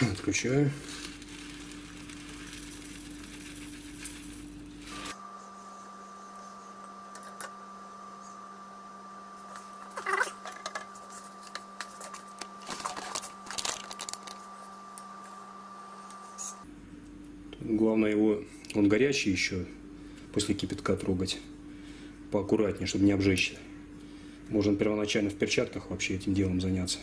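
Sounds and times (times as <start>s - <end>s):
faint steady hum: 0.0s - 27.0s
pellets poured into water: 0.7s - 5.1s.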